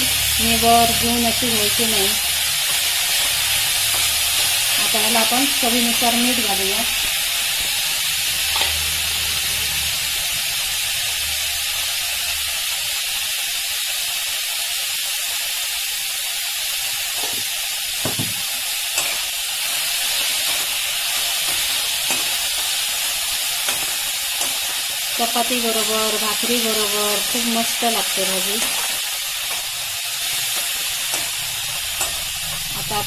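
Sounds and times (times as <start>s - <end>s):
leaves sizzling in oil: 0.0s - 33.0s
metal spatula knocking on pan: 18.0s - 18.4s.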